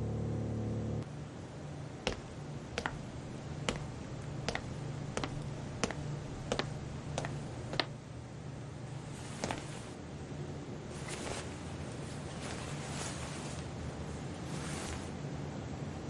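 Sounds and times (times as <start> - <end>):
low steady hum: 0.0 - 16.0
footsteps on hard floor: 2.1 - 7.9, 9.4 - 9.9.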